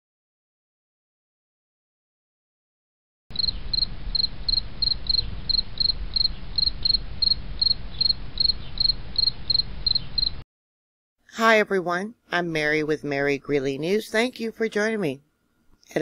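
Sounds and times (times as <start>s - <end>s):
cricket chirping: 3.3s - 10.4s.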